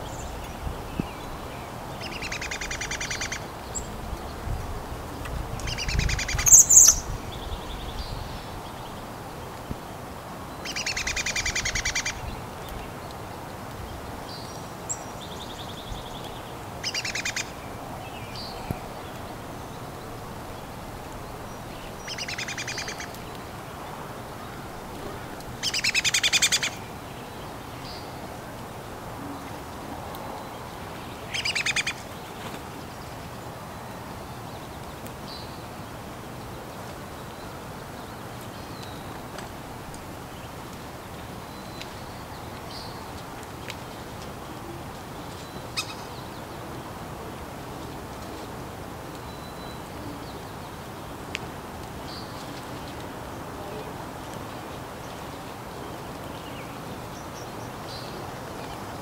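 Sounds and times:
songbird trilling: 2.0s - 3.9s, 5.6s - 8.5s, 16.8s - 18.7s, 21.5s - 23.3s, 25.6s - 26.8s, 31.3s - 32.0s.

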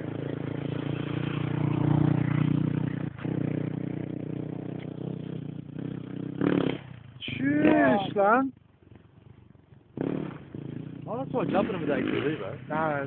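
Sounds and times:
quad engine running: 0.0s - 13.0s.

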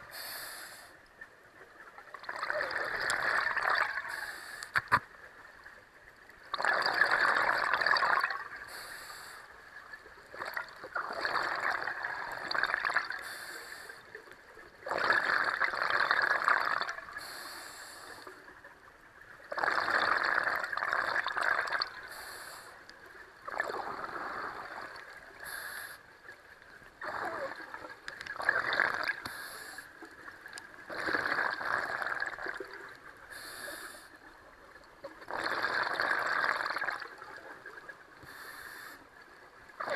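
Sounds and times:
regulator inhale hiss: 0.0s - 1.0s, 4.1s - 4.8s, 8.6s - 9.6s, 13.2s - 14.2s, 17.2s - 18.4s, 22.0s - 22.9s, 25.4s - 26.1s, 29.2s - 30.0s, 33.3s - 34.2s, 38.2s - 39.2s.

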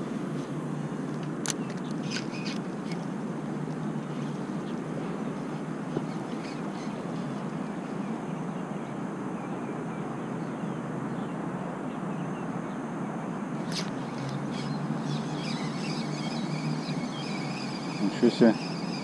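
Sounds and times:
outdoor background noise: 0.0s - 19.0s
high chirping: 14.0s - 19.0s.

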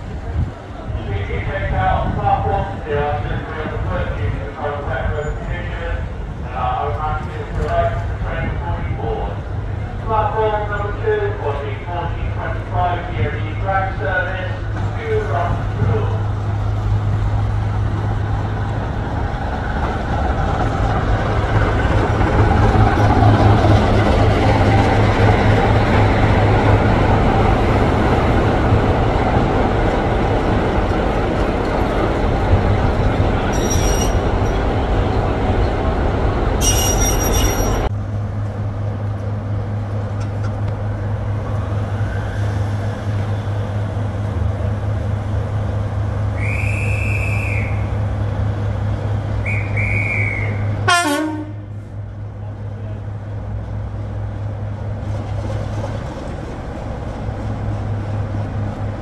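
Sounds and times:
diesel train engines running: 0.0s - 59.0s
diesel engine hum: 2.0s - 59.0s
brief high squeals: 33.5s - 34.2s, 36.6s - 37.8s
short high tones: 33.5s - 34.2s, 36.6s - 37.9s.

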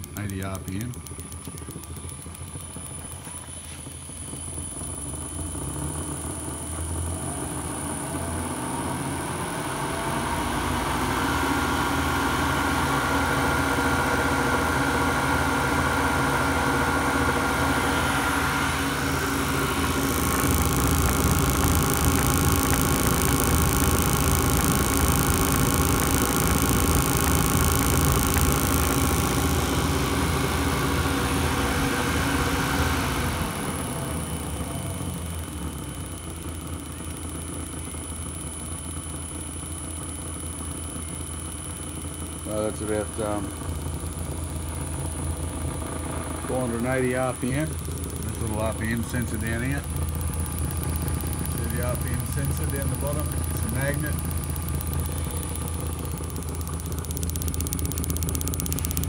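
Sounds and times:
electric motor spinning: 0.0s - 59.0s
spark plugs firing: 18.0s - 34.2s, 46.9s - 59.0s.

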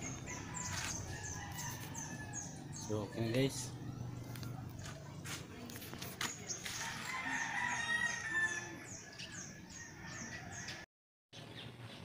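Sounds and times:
small birds chirping: 0.0s - 10.8s
rooster crowing: 0.1s - 3.0s, 6.8s - 10.8s.

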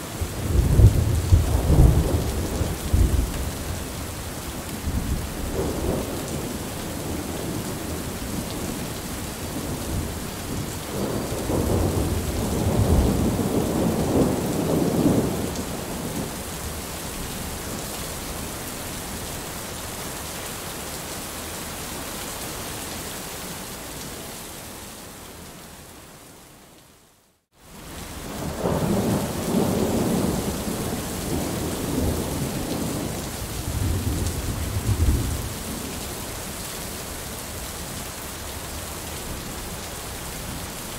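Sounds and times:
heavy rain pouring: 0.0s - 25.8s, 27.5s - 40.9s
thunder rumbling: 0.4s - 4.0s, 4.8s - 16.3s, 28.3s - 36.0s.

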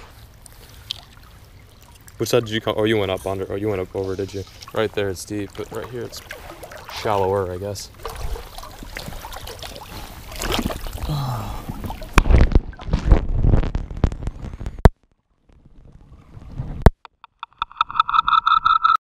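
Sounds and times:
water sloshing and splashing: 0.0s - 14.0s
low underwater rumbling: 7.9s - 16.9s.

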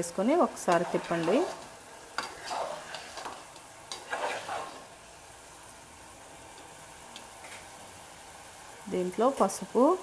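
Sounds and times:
vegetables sizzling in oil: 0.0s - 10.0s
spoon scraping metal pot: 0.6s - 4.9s.

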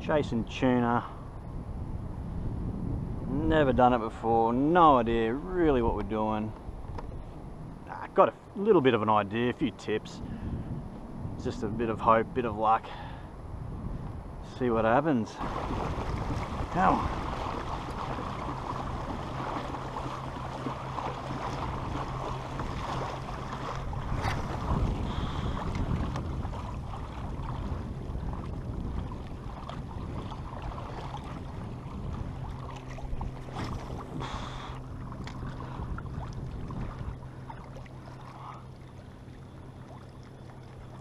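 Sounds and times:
wind buffeting microphone: 0.0s - 41.0s
water splashing along kayak hull: 4.1s - 9.4s, 15.2s - 41.0s.

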